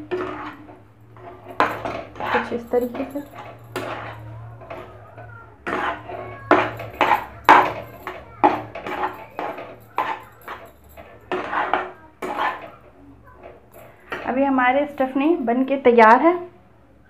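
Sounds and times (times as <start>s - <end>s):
spoon scraping in metal pan: 0.0s - 14.3s.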